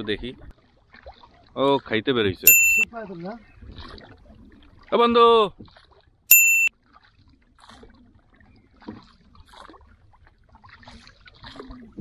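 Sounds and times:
faint small boat sounds: 0.0 - 12.0
short electronic beep: 2.5 - 2.8, 6.3 - 6.7.

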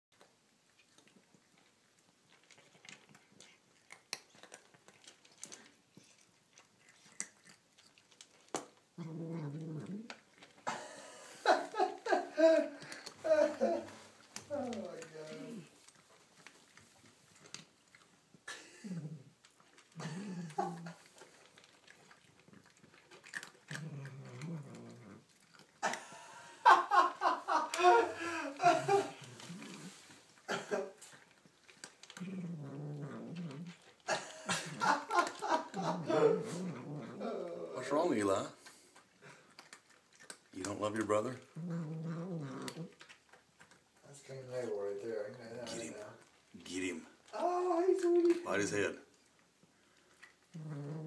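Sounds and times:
cats crunching dry kibble: 0.2 - 51.0
cat growling: 2.3 - 10.8, 11.4 - 15.8, 17.4 - 48.7, 50.0 - 51.0.

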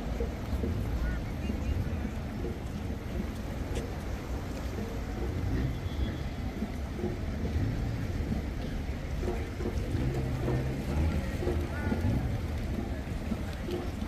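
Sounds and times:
faint voices: 0.0 - 14.0.

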